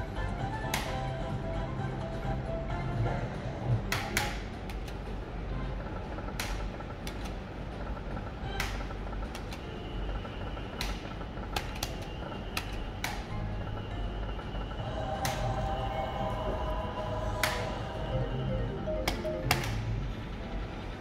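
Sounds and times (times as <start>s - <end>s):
gaming hall noise: 0.0s - 21.0s
slot machine win jingle: 14.9s - 20.1s.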